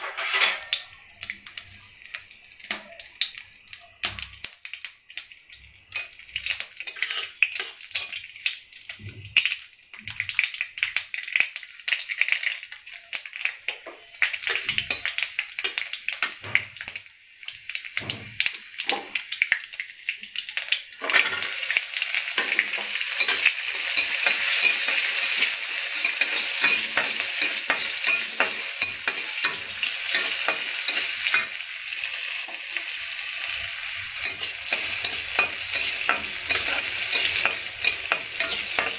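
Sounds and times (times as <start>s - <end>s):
seeds crackling in hot oil: 0.0s - 38.9s
shallots sizzling: 0.0s - 38.9s
spatula scraping pan: 6.8s - 7.4s, 34.1s - 38.9s.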